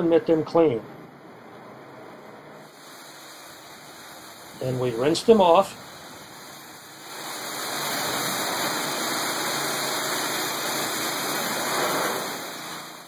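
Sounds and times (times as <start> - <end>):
hose spraying water on car: 2.6 - 13.0.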